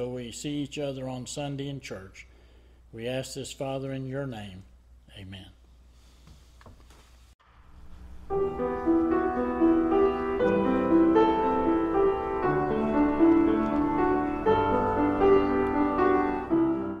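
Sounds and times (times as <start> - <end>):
piano chords: 7.4 - 17.0.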